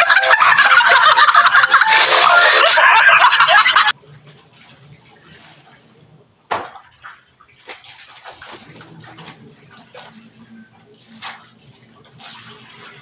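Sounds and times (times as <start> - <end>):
loud dense noise: 0.0 - 3.9
water sloshing and splashing: 3.9 - 13.0.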